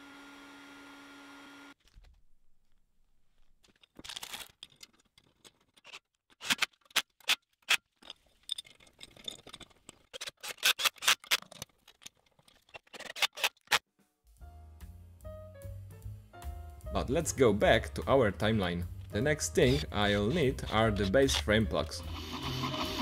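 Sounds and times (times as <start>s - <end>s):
metal plates and screws clinking: 3.6s - 13.8s.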